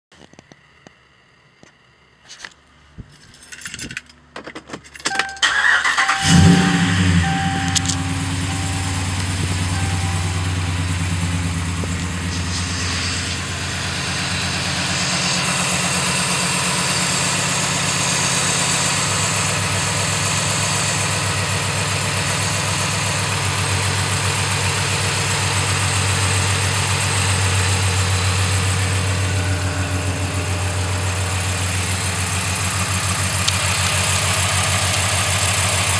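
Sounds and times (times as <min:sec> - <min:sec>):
engine starting and idling: 0:05.1 - 0:35.9
clicks: 0:07.6 - 0:08.1.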